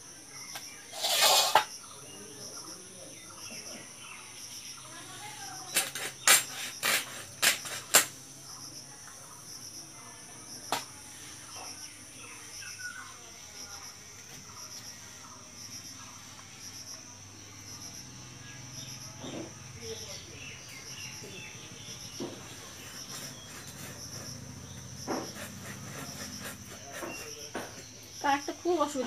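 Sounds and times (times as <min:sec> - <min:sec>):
crickets chirring: 0:00.0 - 0:29.0
knocks of fish being cut: 0:05.7 - 0:08.2, 0:22.2 - 0:28.0.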